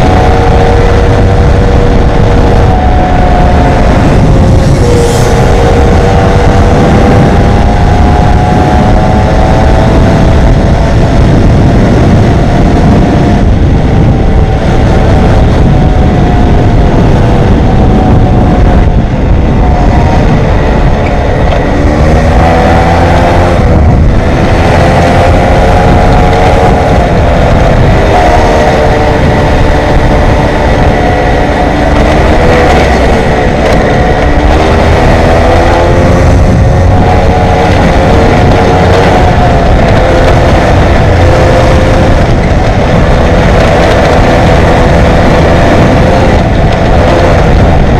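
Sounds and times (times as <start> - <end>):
moped engine running: 0.0 - 47.9
wind rumble on microphone: 0.0 - 47.9.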